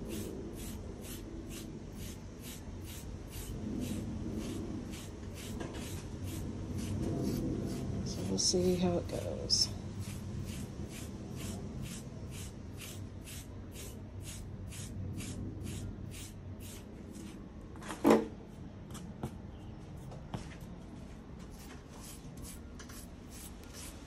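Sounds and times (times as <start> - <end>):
knife rasping through dog fur: 10.0 - 17.3.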